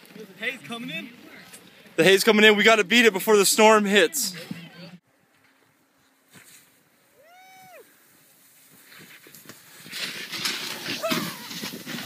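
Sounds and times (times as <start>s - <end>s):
person whooping: 7.2s - 7.9s, 11.0s - 11.5s.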